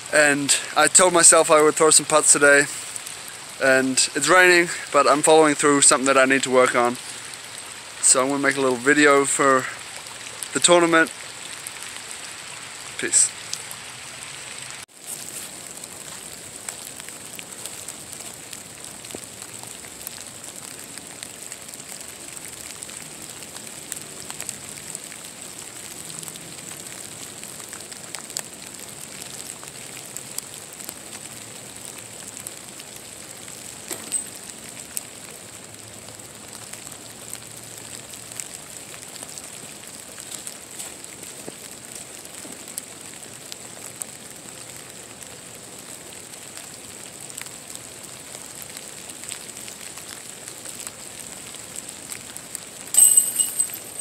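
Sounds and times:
light rain: 0.0 - 54.0.

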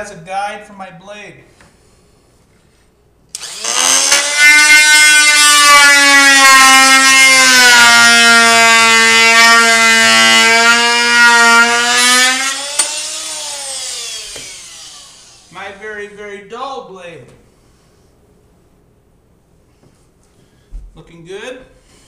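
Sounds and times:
oscillating tool cutting wood: 3.4 - 15.6.

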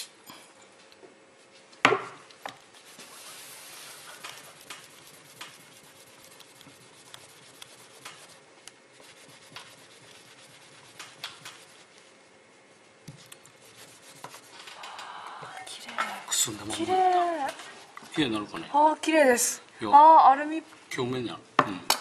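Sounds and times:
paper tissue crinkling: 2.6 - 14.8.

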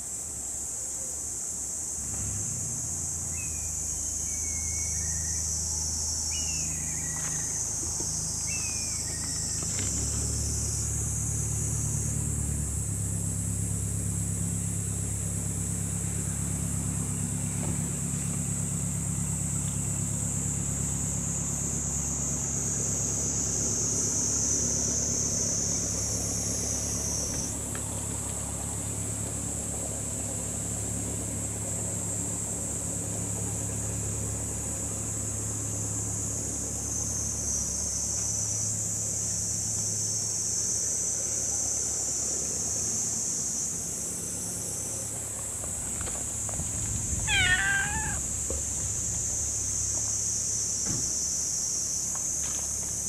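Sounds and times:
engine humming: 1.9 - 53.0
short falling chirps: 47.3 - 48.2.

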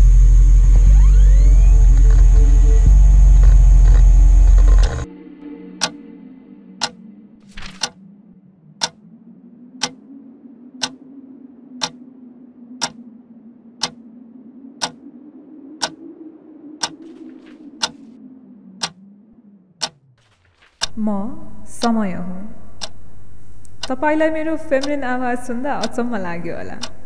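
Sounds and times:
low steady hum: 0.0 - 27.0
alarm clock ticking: 4.0 - 5.1, 5.8 - 6.0, 6.8 - 7.0, 7.6 - 8.0, 8.8 - 9.0, 9.8 - 10.0, 10.8 - 11.1, 11.8 - 12.0, 12.8 - 13.0, 13.8 - 14.0, 14.8 - 15.1, 15.8 - 16.0, 16.8 - 18.1, 18.8 - 19.0, 19.8 - 20.0, 20.6 - 27.0.

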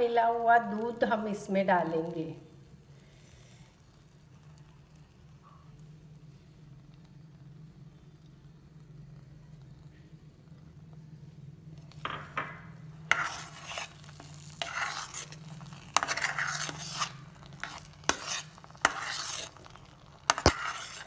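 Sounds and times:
metal spatula scraping a pan: 13.0 - 21.0.

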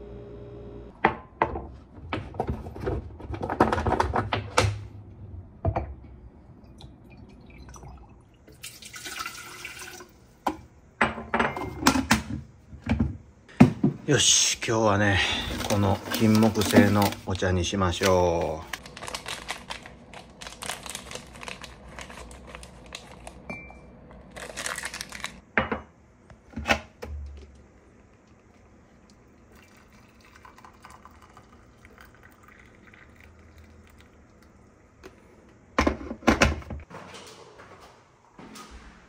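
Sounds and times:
water pouring into mug: 6.7 - 10.2, 28.4 - 34.8
foil sachet crinkling and tearing: 15.5 - 17.4, 18.0 - 23.4, 24.3 - 25.4.

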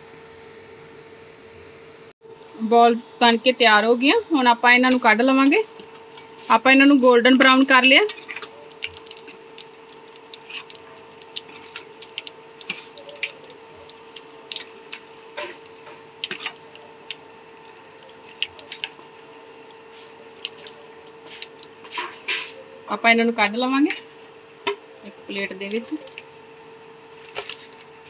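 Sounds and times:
faint steady hum: 0.0 - 28.0
deep-frying oil sizzling: 3.3 - 21.9.

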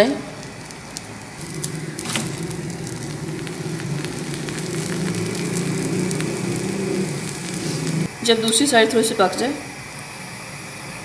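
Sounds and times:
flatbread sizzling in fat: 0.0 - 8.1.

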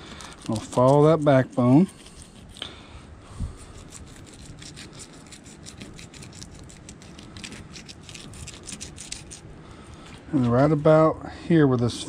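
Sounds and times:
fillet knife scraping through fish: 0.0 - 2.7, 3.5 - 9.5.

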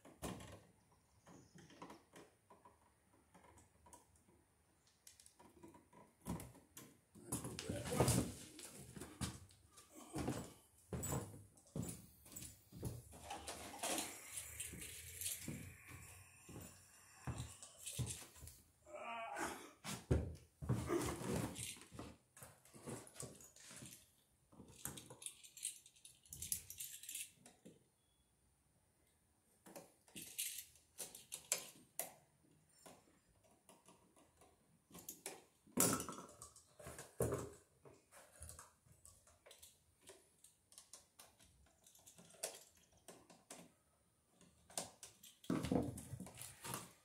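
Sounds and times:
hand tools clicking and clinking: 11.0 - 16.6, 17.2 - 18.5, 38.2 - 43.8.

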